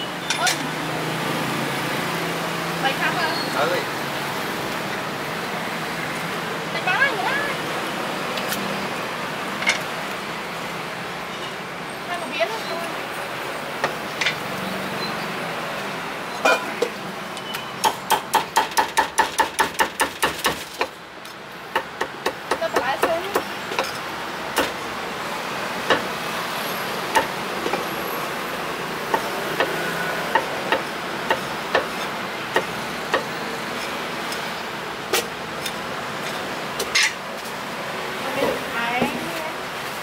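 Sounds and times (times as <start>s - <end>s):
cleaver chopping on wooden block: 17.8s - 20.9s.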